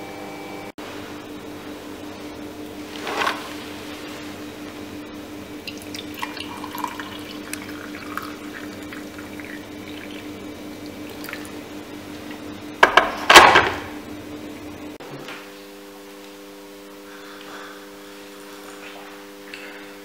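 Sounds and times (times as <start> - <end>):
steady low hum: 0.0 - 20.0
hot water pouring into mug: 5.7 - 11.6
loud knocks: 12.8 - 13.9.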